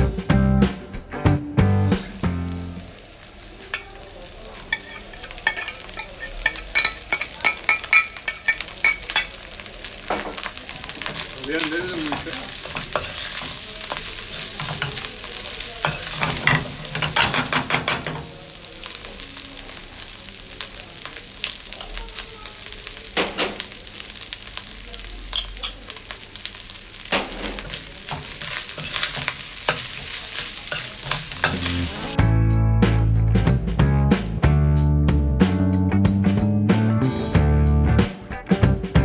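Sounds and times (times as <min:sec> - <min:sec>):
rice sizzling in a wok: 0:01.8 - 0:32.2
metal spoon scraping a pan: 0:04.7 - 0:09.4, 0:10.3 - 0:18.3, 0:25.3 - 0:25.8, 0:27.2 - 0:32.2.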